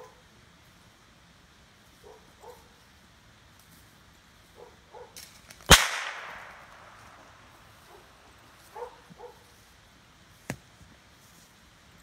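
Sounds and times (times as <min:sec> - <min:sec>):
faint sharp crack: 0:05.2 - 0:07.2
loud sharp bang with echo: 0:05.7 - 0:07.2.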